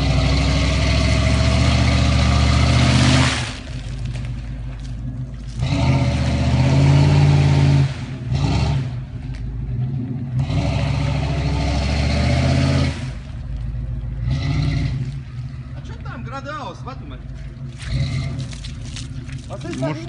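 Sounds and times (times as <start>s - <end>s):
truck engine revving: 0.0s - 4.3s, 5.0s - 16.0s, 17.6s - 19.2s.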